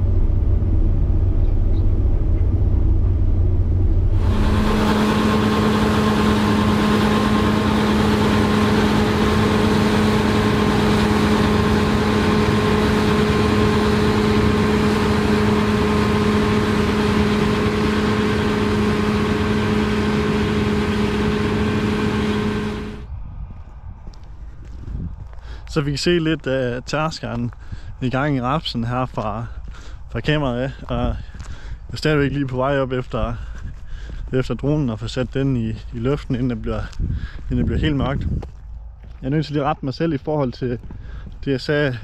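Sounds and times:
combine harvester running: 0.0 - 23.1
low rumble: 0.0 - 25.8, 27.3 - 39.6.

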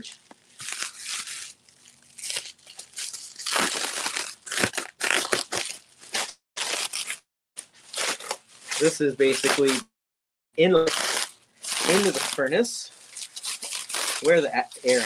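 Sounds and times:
plastic packaging crinkling: 0.0 - 9.8, 10.8 - 15.0.

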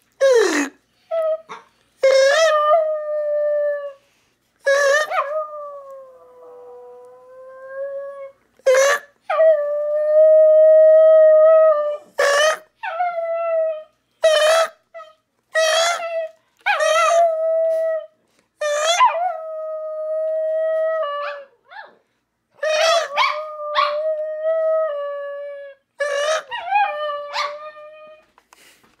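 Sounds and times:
dog crying: 0.2 - 2.8, 4.6 - 5.4, 8.6 - 9.4, 11.9 - 17.4, 18.6 - 19.3, 22.6 - 24.0, 26.0 - 28.2
small dog howling: 1.2 - 4.0, 4.7 - 17.8, 22.6 - 28.3.

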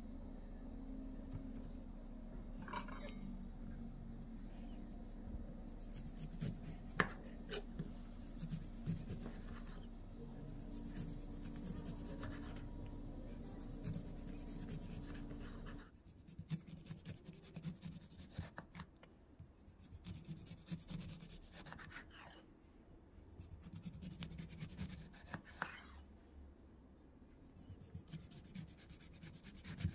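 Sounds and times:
steady low hum: 0.0 - 18.2.

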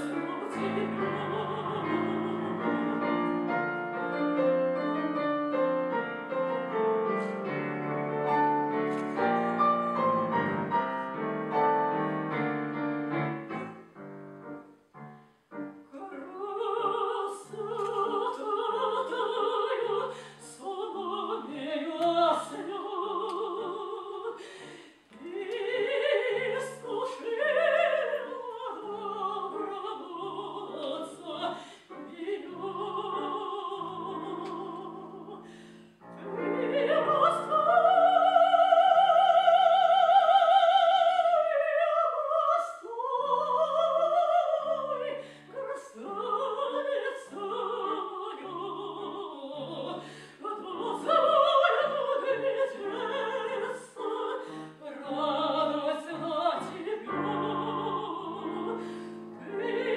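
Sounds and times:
woman singing operatically: 0.0 - 3.3, 15.9 - 24.5, 25.1 - 35.5, 36.2 - 59.9
piano accompaniment: 0.0 - 20.0, 25.2 - 42.4, 45.6 - 59.9.

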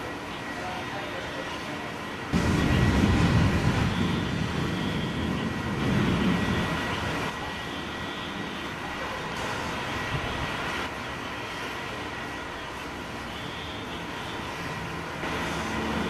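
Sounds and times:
thunder rumbling: 2.3 - 8.0.

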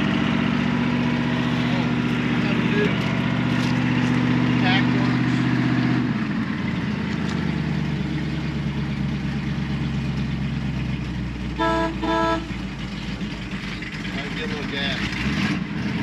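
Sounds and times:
car engine idling: 0.0 - 16.0
car horn beeps: 11.6 - 12.6.

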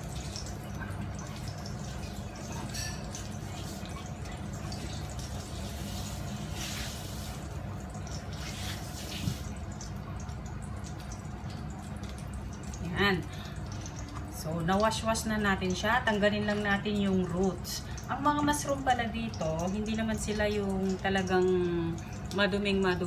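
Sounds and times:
water dripping and splashing in sink: 0.0 - 23.0.

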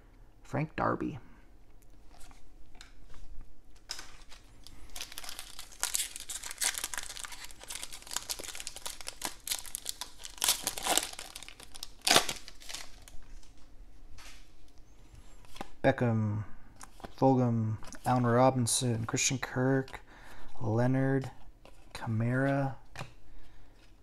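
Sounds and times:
foil wrapper tearing and crinkling: 4.6 - 13.2.

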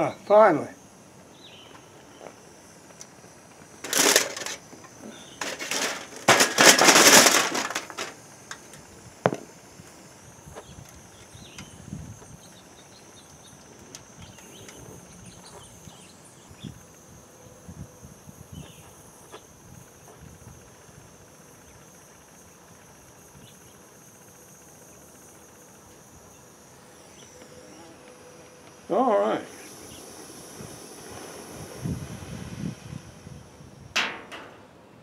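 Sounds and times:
crunching scraping noise: 3.8 - 4.8, 5.4 - 8.2.

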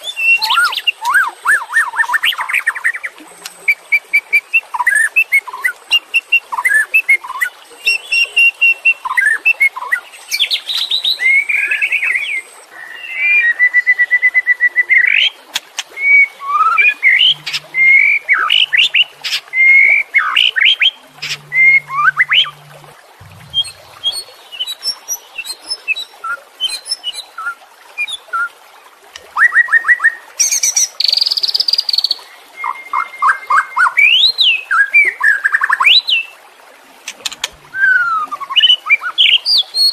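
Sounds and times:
bird singing whistles and trills: 3.7 - 15.4, 29.4 - 36.3, 37.2 - 39.9.

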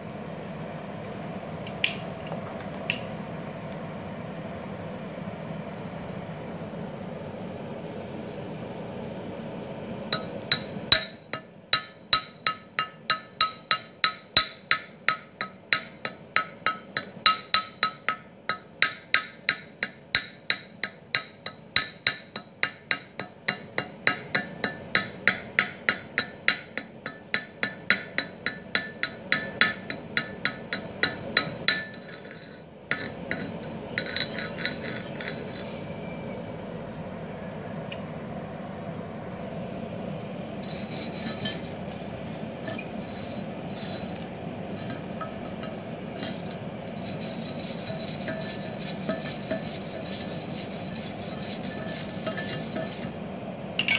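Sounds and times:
hammer striking metal: 10.1 - 35.7.

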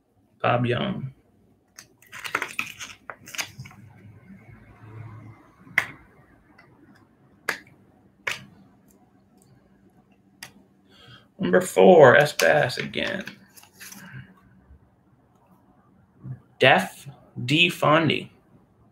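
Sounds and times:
soft sliding rustle: 13.5 - 14.3.

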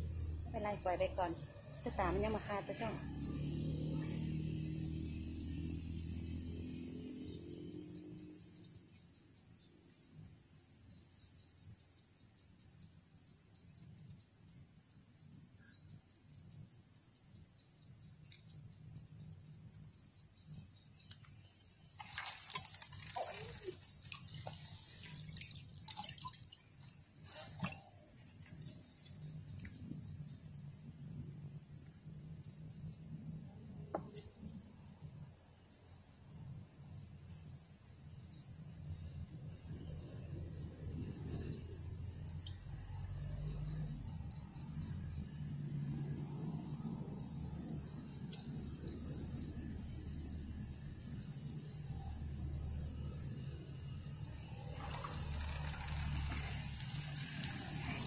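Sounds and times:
insects chirring: 0.0 - 58.0
water splashes and drips: 20.9 - 30.5, 42.1 - 46.2, 47.0 - 58.0.

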